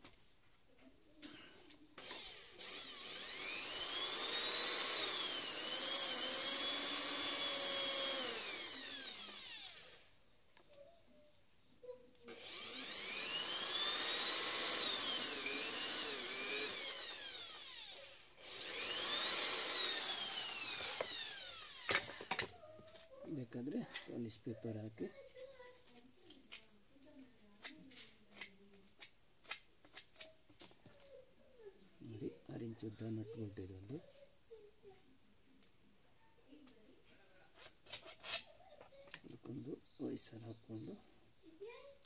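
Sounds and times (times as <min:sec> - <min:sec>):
electric drill whining: 0:01.3 - 0:10.2, 0:12.3 - 0:22.6.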